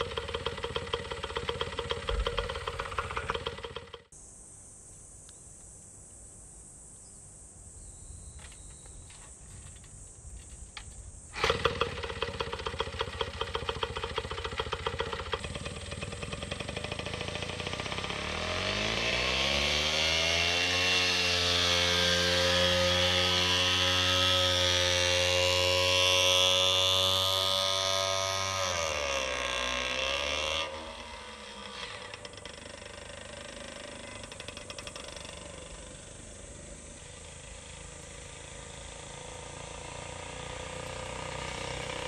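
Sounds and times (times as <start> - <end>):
motorcycle engine idling: 0.0 - 4.1, 11.4 - 20.0, 21.2 - 42.0
faint background hiss: 4.1 - 11.4, 29.1 - 42.0.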